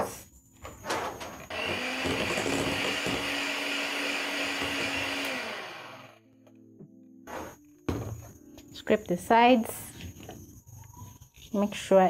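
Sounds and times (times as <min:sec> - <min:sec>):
electric hand mixer running: 0:01.5 - 0:06.2.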